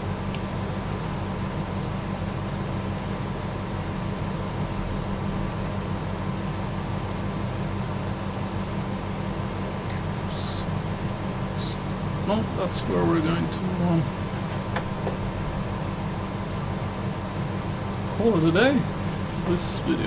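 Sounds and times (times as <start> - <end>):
machine hum with hiss: 0.0 - 20.0
faint small clicks: 16.5 - 16.7.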